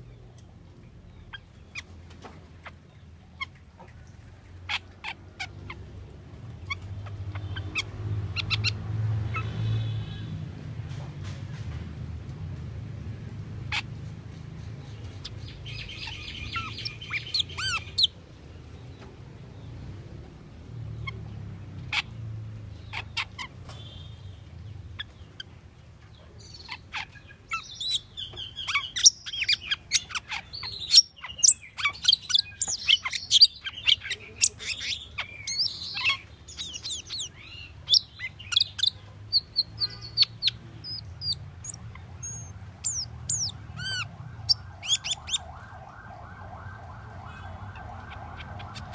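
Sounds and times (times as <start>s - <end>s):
starling singing: 14.7s - 18.2s, 26.4s - 45.6s, 47.4s - 48.9s.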